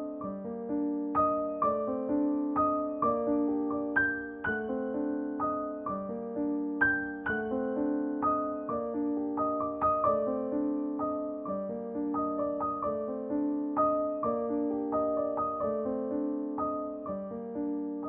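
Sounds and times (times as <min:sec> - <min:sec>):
piano music: 0:00.0 - 0:18.0.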